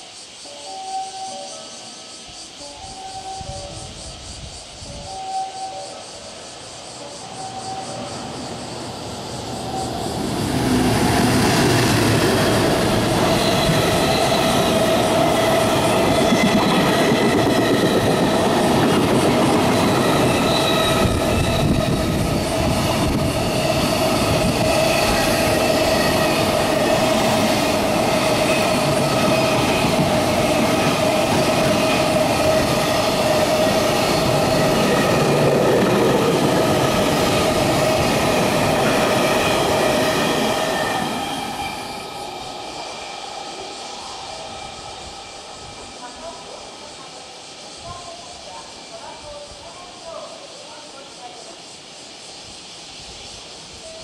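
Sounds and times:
ringing wheel tone: 0:00.6 - 0:04.1
train wheels rumbling on rail: 0:02.0 - 0:54.0.

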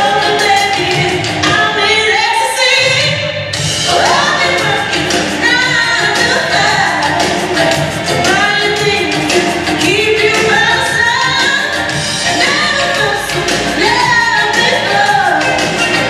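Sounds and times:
song over sound system: 0:00.0 - 0:16.0.

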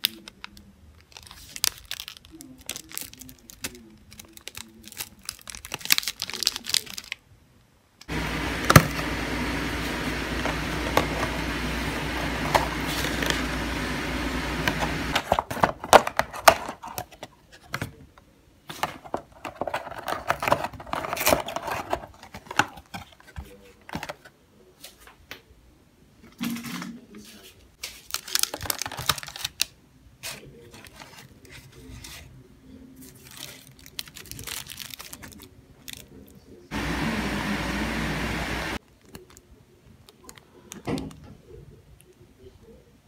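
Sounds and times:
paper and cardboard crinkling: 0:00.0 - 0:07.2, 0:09.9 - 0:13.8, 0:14.6 - 0:18.0, 0:18.7 - 0:25.0, 0:26.5 - 0:32.4, 0:33.0 - 0:36.2
steady hum and hiss: 0:00.0 - 0:21.9, 0:35.4 - 0:38.8.

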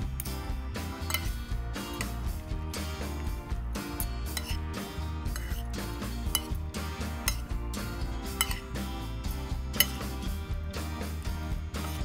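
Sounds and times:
background music with beat: 0:00.0 - 0:12.0
cutlery clinking on plate: 0:01.1 - 0:01.4, 0:04.3 - 0:04.6, 0:05.3 - 0:05.6, 0:06.3 - 0:06.6, 0:08.4 - 0:08.6, 0:09.8 - 0:10.0.

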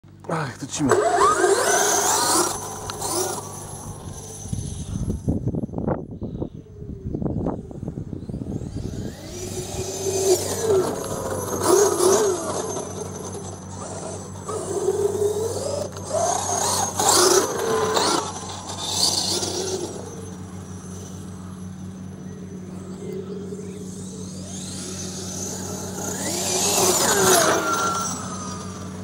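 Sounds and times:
rc truck electric motor whine: 0:00.7 - 0:29.0.

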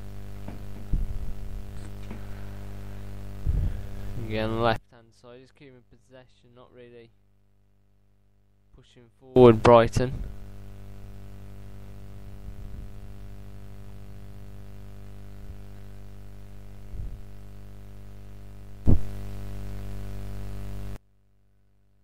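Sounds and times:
recording hiss: 0:00.0 - 0:06.7
electrical mains hum: 0:00.0 - 0:22.0
short pop: 0:18.8 - 0:19.1.

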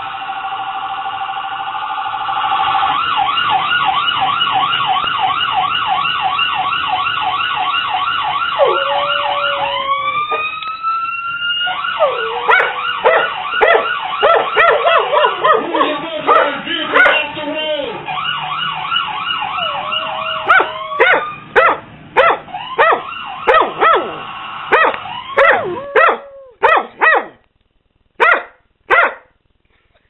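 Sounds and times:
police siren yelping: 0:00.0 - 0:27.2
dog howling: 0:08.5 - 0:10.7, 0:11.6 - 0:17.2, 0:19.5 - 0:27.4.

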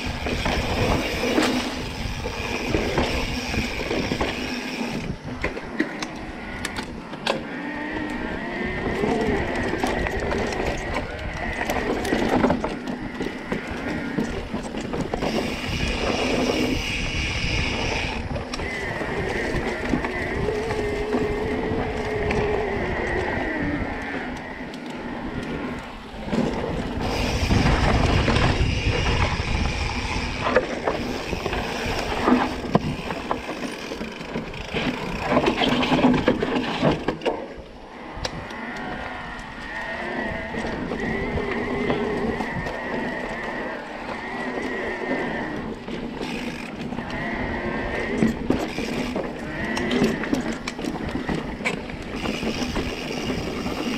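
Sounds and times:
tyre noise on dirt: 0:00.0 - 0:06.3, 0:25.5 - 0:37.6, 0:39.7 - 0:53.9
bike rattling over bumps: 0:00.0 - 0:37.8, 0:39.6 - 0:53.9
wind noise on microphone: 0:00.0 - 0:53.9.

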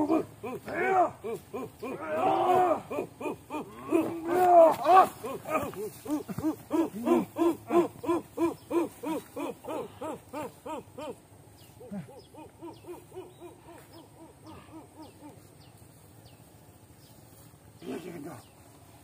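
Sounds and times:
owl-like hoots: 0:05.7 - 0:15.6.

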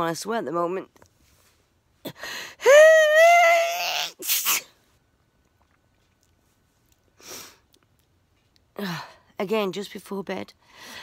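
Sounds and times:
woman sneezing: 0:03.8 - 0:04.7
faint breath: 0:10.6 - 0:11.0.

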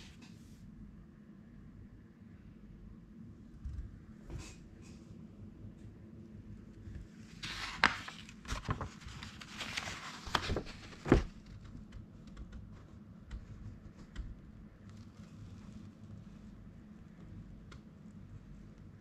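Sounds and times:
paper rustling and crinkling: 0:06.8 - 0:12.0, 0:13.4 - 0:16.5
light paper ticks: 0:07.4 - 0:19.0.

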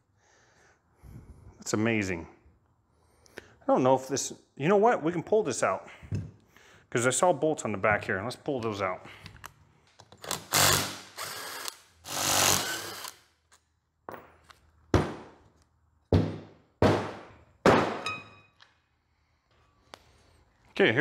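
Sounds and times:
cordless driver whirring: 0:10.2 - 0:13.2.

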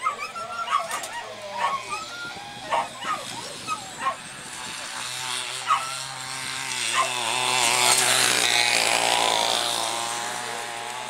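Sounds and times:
dog yelping: 0:00.0 - 0:04.3, 0:05.6 - 0:06.1, 0:06.9 - 0:07.2
mechanical lure motor whining: 0:00.0 - 0:11.0.

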